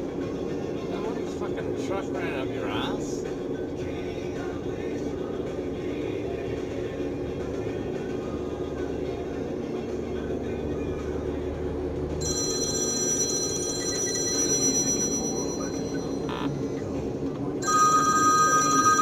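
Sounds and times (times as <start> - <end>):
road and tyre noise: 0.0 - 19.0
high electronic warning tone: 12.2 - 16.9, 17.6 - 19.0.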